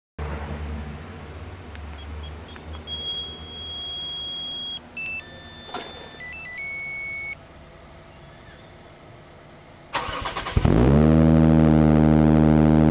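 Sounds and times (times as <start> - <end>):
electronic beeping melody: 2.0 - 7.4.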